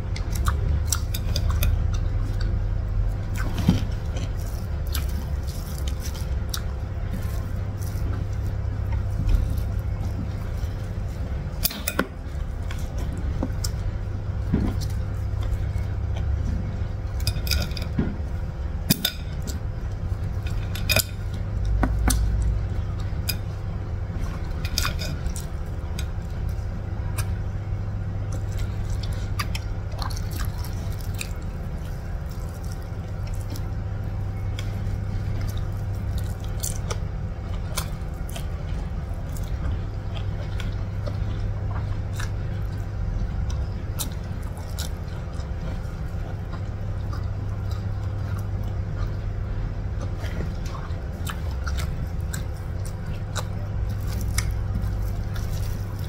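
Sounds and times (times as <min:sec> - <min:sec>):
low hum: 0:00.0 - 0:56.0
fingers squishing rice: 0:24.3 - 0:56.0
chewing mouth smacks: 0:28.2 - 0:56.0.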